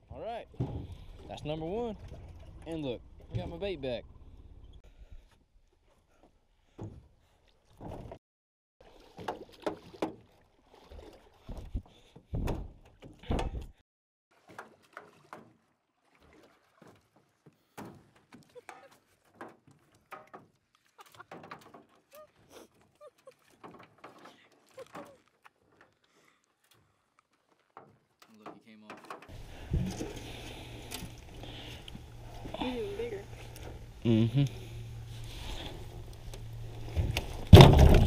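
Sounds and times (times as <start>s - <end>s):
knocks and bumps in a boat: 0.0s - 4.8s, 6.6s - 8.2s, 9.1s - 13.8s, 14.4s - 15.8s, 16.4s - 22.4s, 23.4s - 25.9s, 27.8s - 34.0s, 35.3s - 38.0s
loud thumps: 37.0s - 38.0s.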